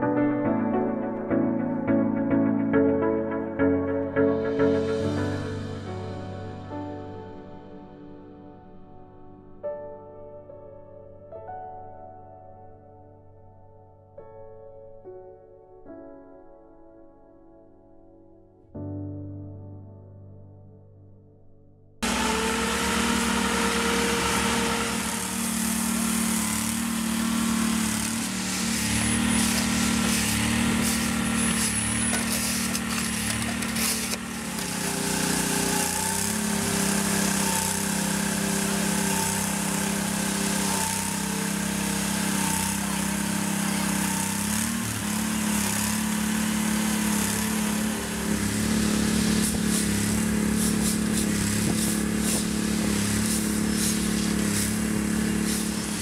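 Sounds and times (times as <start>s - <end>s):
small engine running: 22.0s - 56.0s.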